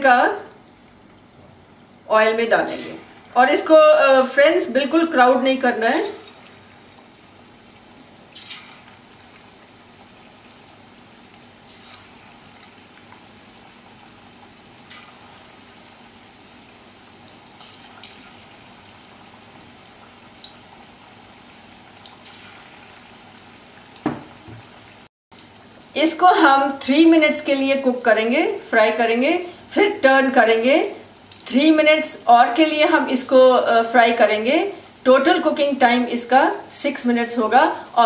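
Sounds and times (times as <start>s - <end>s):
chicken deep frying in oil: 0.0s - 38.0s
loud knock: 24.0s - 24.6s.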